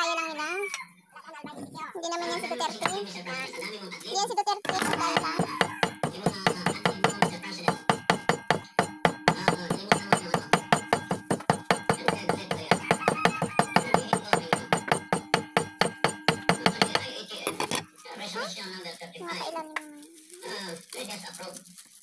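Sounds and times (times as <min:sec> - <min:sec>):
cleaver chopping on wooden block: 0:02.8 - 0:03.0, 0:04.7 - 0:17.9.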